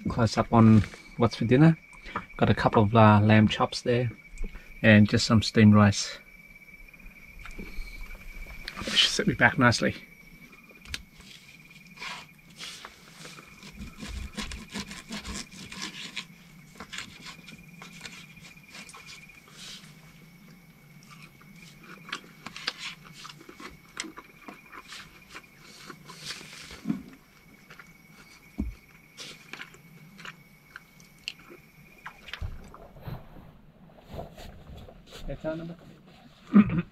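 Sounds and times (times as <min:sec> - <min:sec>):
person chewing: 0:21.0 - 0:26.4.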